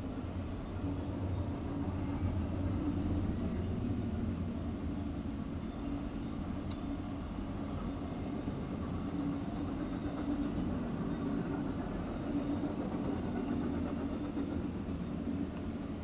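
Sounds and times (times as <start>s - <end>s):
freight train rumbling past: 0.0s - 16.0s.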